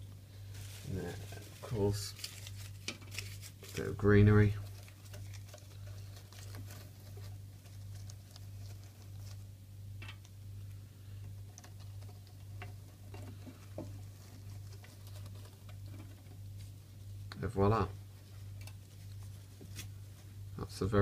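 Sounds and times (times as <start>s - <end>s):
steady low hum: 0.0s - 21.0s
plastic plants clicking and rustling: 0.5s - 9.4s.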